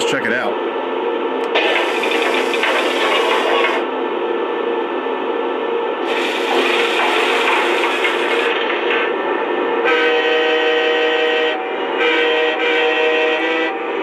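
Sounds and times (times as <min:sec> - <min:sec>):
mechanical whirring and rubbing: 0:01.5 - 0:03.8, 0:06.0 - 0:08.6
steady train horn: 0:09.4 - 0:14.0.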